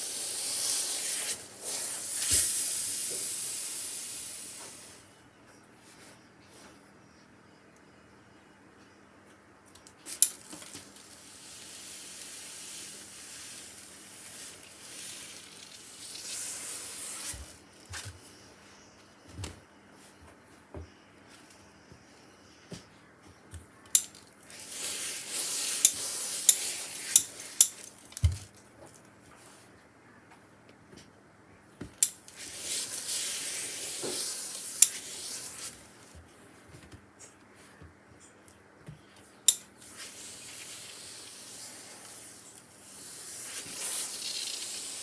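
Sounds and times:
steam iron hissing: 0:00.0 - 0:05.1, 0:10.9 - 0:17.6, 0:24.5 - 0:27.8, 0:32.3 - 0:35.9, 0:39.8 - 0:45.0.

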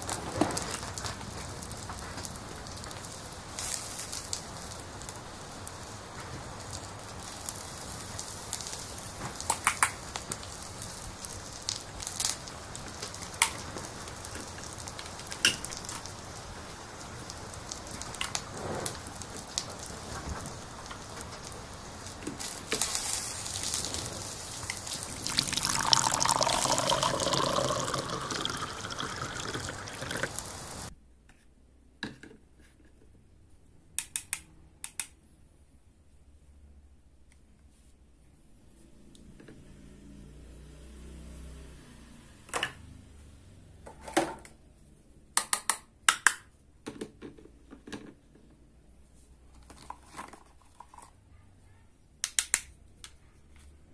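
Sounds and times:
toy cooking pot sizzling hiss: 0:21.9 - 0:30.9.

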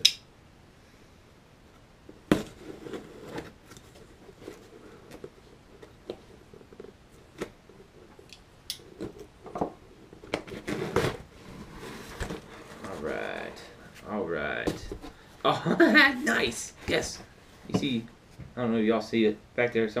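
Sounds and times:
knife cutting cardboard box: 0:10.3 - 0:12.9.

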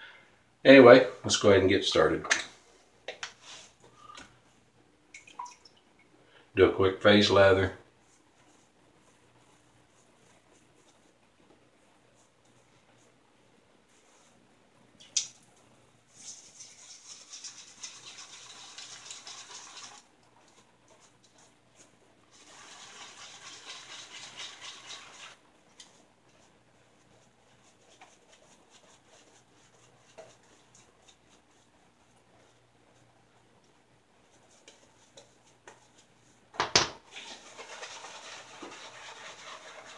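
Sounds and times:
shaving brush swishing on soap: 0:03.4 - 0:03.8, 0:13.9 - 0:14.4, 0:16.1 - 0:33.2, 0:34.2 - 0:36.4, 0:37.1 - 0:39.9.

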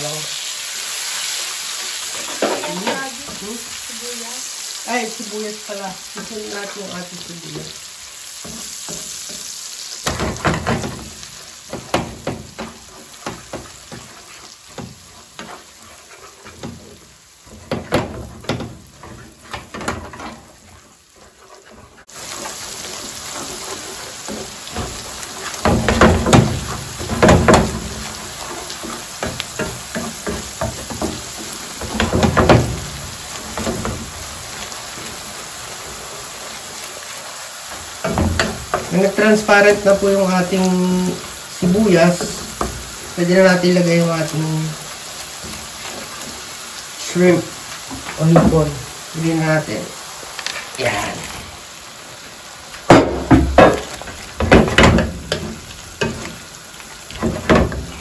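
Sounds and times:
onion sizzling in butter: 0:00.0 - 0:58.0
wooden spatula scraping pan: 0:02.0 - 0:03.7, 0:08.4 - 0:37.1.

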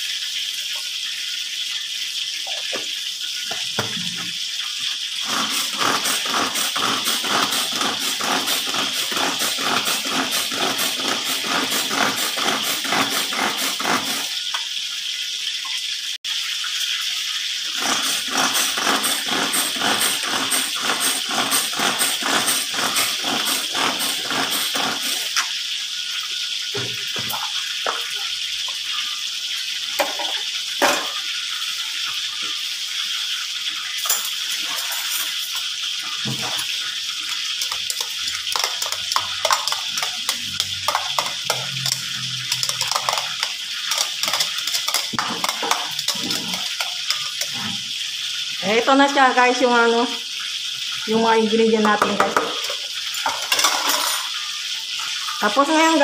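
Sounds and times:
plunger chopper chopping: 0:05.2 - 0:14.3, 0:17.8 - 0:25.4.

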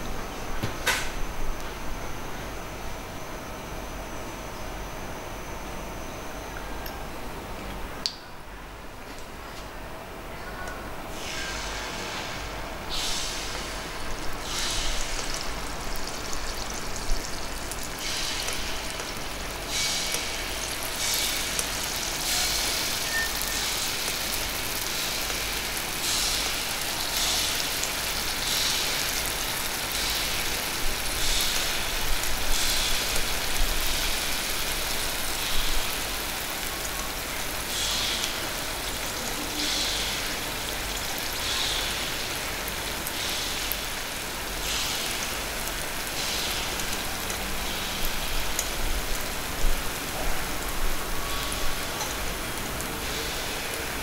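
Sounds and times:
batter sizzling in hot oil: 0:11.2 - 0:54.0.

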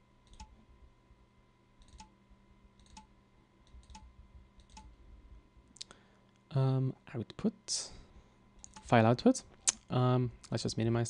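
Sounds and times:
faint steady hum: 0:00.0 - 0:11.0
computer mouse clicks: 0:00.2 - 0:00.6, 0:01.8 - 0:02.2, 0:02.8 - 0:04.9, 0:08.6 - 0:08.9.

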